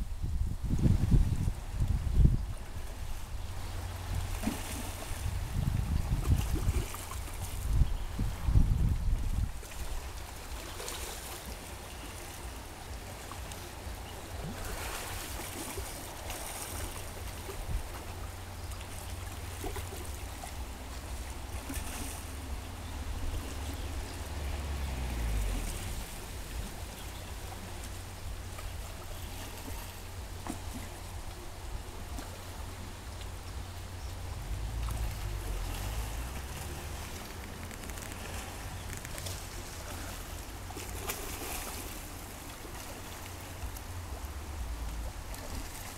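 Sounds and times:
creek running over gravel: 0:00.0 - 0:45.9
low rumble: 0:33.1 - 0:40.7.

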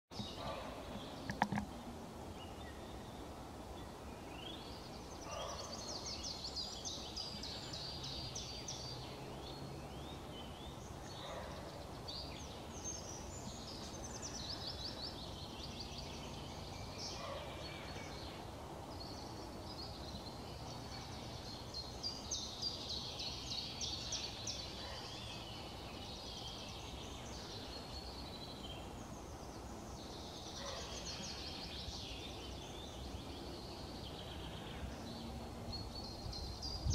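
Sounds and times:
songbirds trilling: 0:00.1 - 0:36.9.

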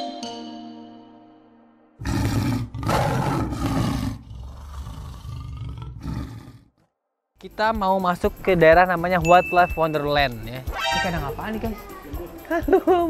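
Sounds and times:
big cat roaring: 0:02.0 - 0:06.8
drawn-out growl: 0:02.0 - 0:06.8.

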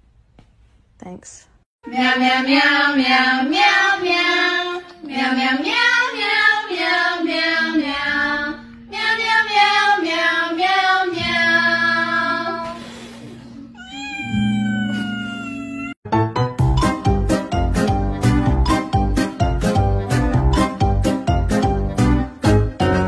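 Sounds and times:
song sung in meows: 0:13.8 - 0:16.0.

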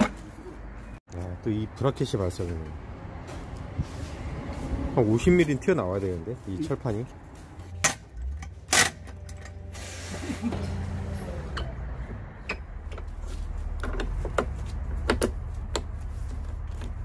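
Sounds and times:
metal tools clanking: 0:07.7 - 0:09.8.

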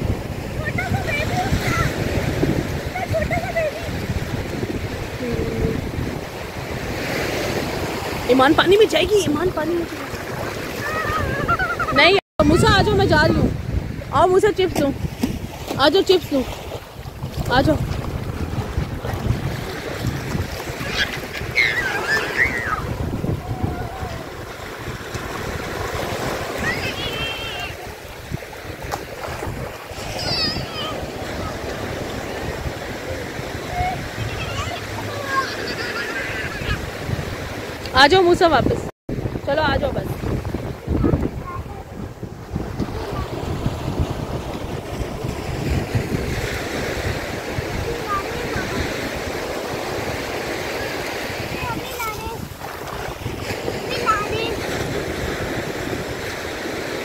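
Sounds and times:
sea waves washing in: 0:00.0 - 0:57.0
wind buffeting microphone: 0:00.0 - 0:57.0
child squealing: 0:10.8 - 0:11.9, 0:20.8 - 0:24.3, 0:26.6 - 0:27.7, 0:30.1 - 0:31.0, 0:33.8 - 0:36.8.

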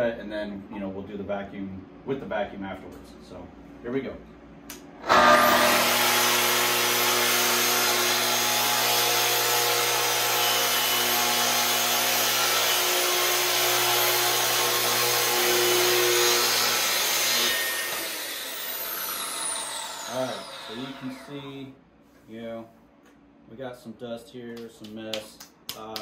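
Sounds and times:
circular saw cutting wood: 0:05.0 - 0:21.6.

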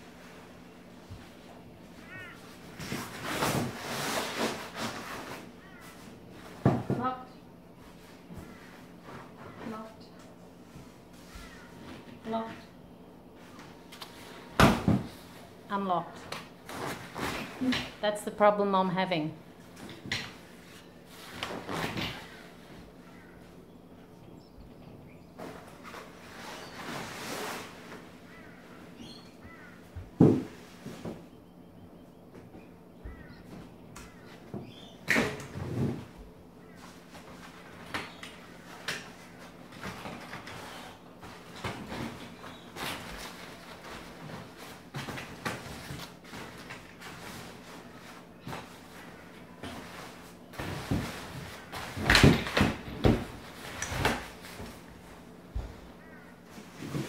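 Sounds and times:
faint bird calls: 0:01.7 - 0:02.8, 0:05.3 - 0:06.5, 0:07.8 - 0:10.2, 0:10.8 - 0:14.5, 0:22.1 - 0:27.0, 0:28.1 - 0:35.1, 0:55.6 - 0:56.9
nylon fabric rustling: 0:16.5 - 0:18.0.

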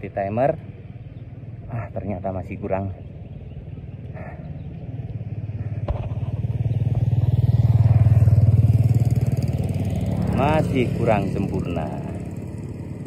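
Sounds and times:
vehicle engine running: 0:03.0 - 0:13.0.

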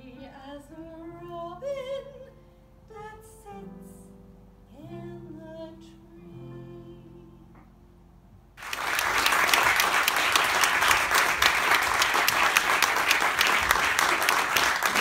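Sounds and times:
audience applause: 0:08.6 - 0:15.0.

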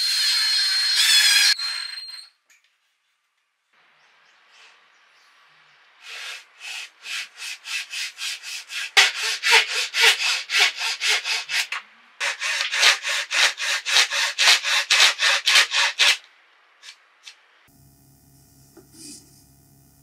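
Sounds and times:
hand saw cutting wood: 0:06.0 - 0:16.2.

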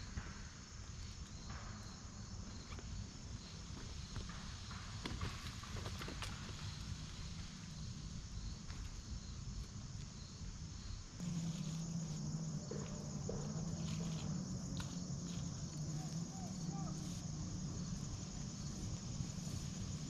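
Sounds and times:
insects droning: 0:00.0 - 0:20.0
low steady hum: 0:06.6 - 0:20.0.

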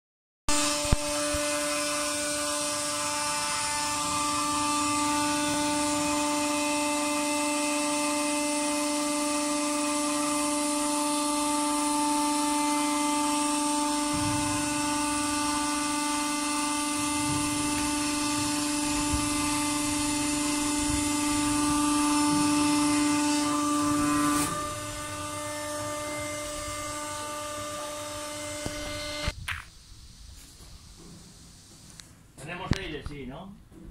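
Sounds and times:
hydraulic pump motor whine: 0:00.5 - 0:29.4.

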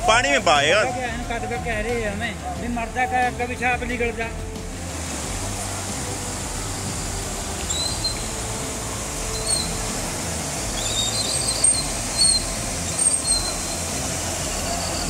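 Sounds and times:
rushing flooding river: 0:00.0 - 0:15.0
high bird chirps: 0:07.7 - 0:08.4, 0:09.3 - 0:09.8, 0:10.8 - 0:13.9.

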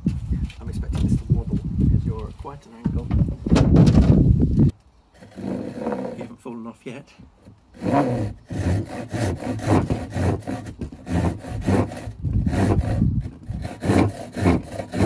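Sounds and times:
hand saw cutting wood: 0:05.2 - 0:06.4, 0:07.4 - 0:15.0.

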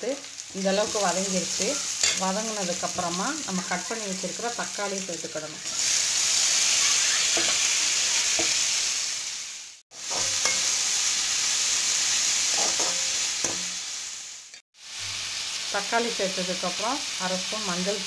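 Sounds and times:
vegetables sizzling in hot oil: 0:00.0 - 0:18.0
steel spatula scraping pan: 0:05.5 - 0:08.6, 0:10.1 - 0:10.8.

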